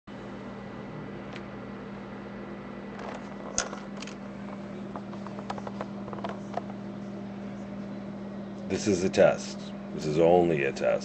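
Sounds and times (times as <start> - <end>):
steady low hum: 0.1 - 11.0
webcam handling noise: 3.0 - 6.8.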